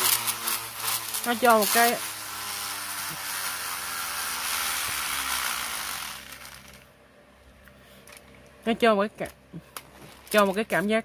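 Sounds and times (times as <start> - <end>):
spinning top whirring: 0.0 - 6.9.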